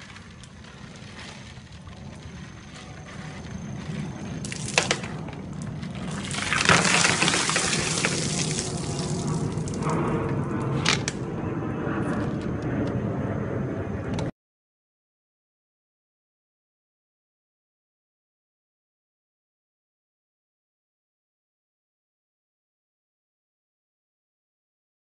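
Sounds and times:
water pouring and splashing: 4.4s - 5.2s, 5.8s - 10.0s.

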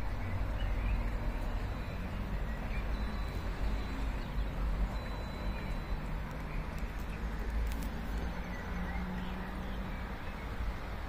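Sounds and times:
faint bird chirps: 0.1s - 6.7s.

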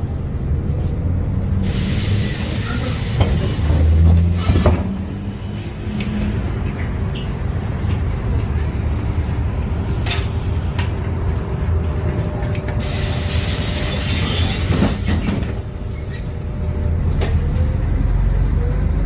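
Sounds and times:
bus engine drone: 0.0s - 19.0s
road rumble: 0.0s - 19.0s
loud hissing rush: 1.6s - 3.8s.

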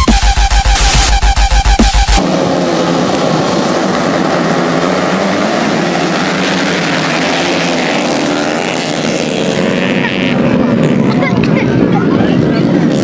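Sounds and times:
dirt bike engines revving: 0.3s - 13.0s.

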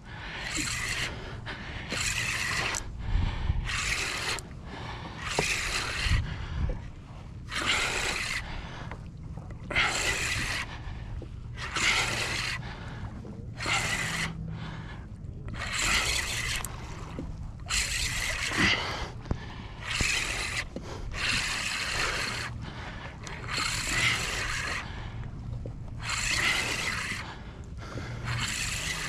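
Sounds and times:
person breathing hard: 0.0s - 6.9s, 9.7s - 17.1s, 17.8s - 25.4s.

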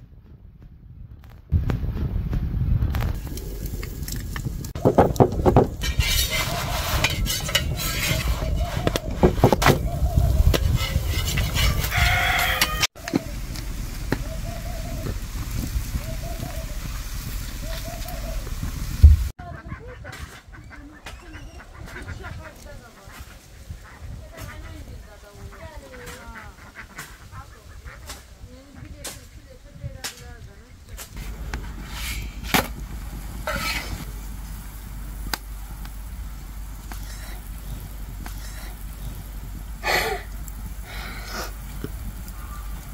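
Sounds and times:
low rumble: 0.0s - 19.4s, 30.9s - 42.9s
wood fire crackling and popping: 0.6s - 19.4s, 30.9s - 42.9s
metal spatula scraping griddle: 4.8s - 9.8s, 10.4s - 12.9s, 31.0s - 34.1s, 36.8s - 39.2s.

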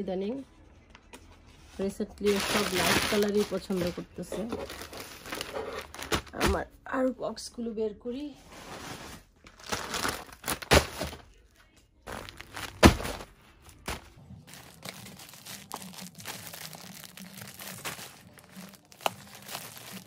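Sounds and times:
plastic envelopes crinkling: 2.2s - 6.5s, 9.2s - 11.4s, 12.1s - 20.0s.

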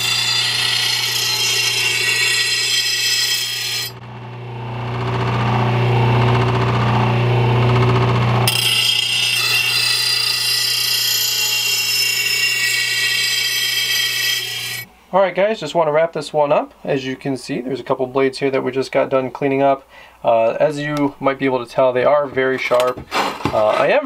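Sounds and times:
grinder motor humming: 0.0s - 14.9s
grinding wheel grinding steel: 0.0s - 14.9s.

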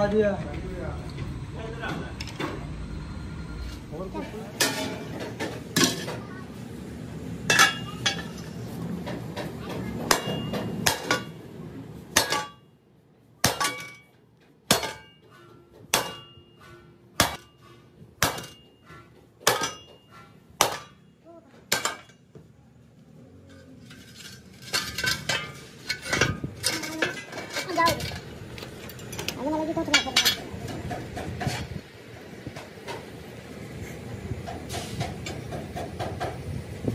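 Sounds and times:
steel wheel rims clanking: 3.5s - 6.3s, 7.4s - 12.7s, 13.4s - 22.4s, 23.3s - 33.3s
hammer striking steel rim: 10.1s - 11.4s, 12.1s - 12.7s, 13.4s - 21.1s.

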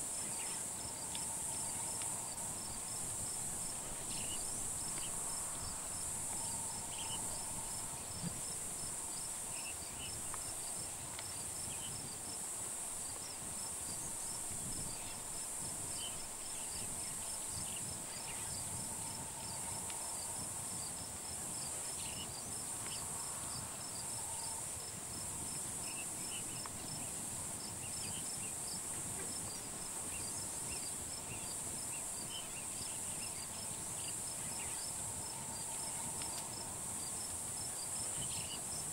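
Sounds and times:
fast ticking insect call: 0.0s - 12.3s
insect chirps: 0.0s - 38.9s.

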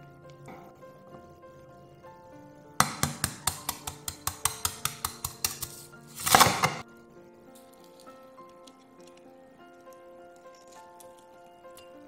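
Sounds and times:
soft background music: 0.0s - 12.0s
knife tapping egg shell: 2.8s - 6.7s
egg shell crunching: 7.6s - 12.0s.

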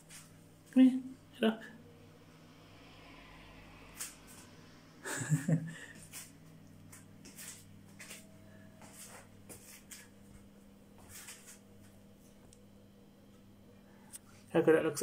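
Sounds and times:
steady low hum: 0.0s - 15.0s
rustles and light taps: 6.1s - 11.9s.

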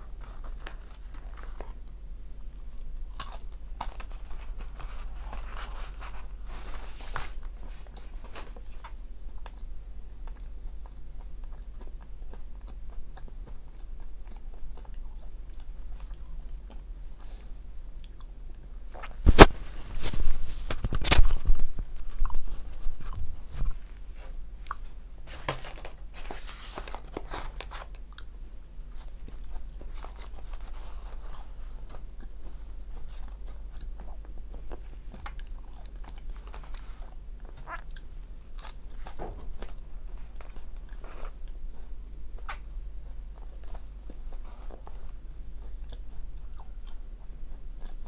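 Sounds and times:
rustling: 0.0s - 9.6s, 18.8s - 46.2s
fries being chewed: 0.0s - 48.0s.

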